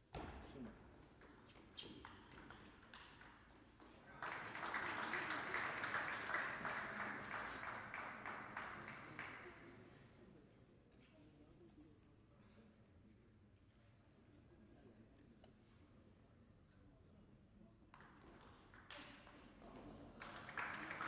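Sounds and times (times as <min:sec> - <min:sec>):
applause: 0:03.8 - 0:10.0, 0:20.0 - 0:21.0.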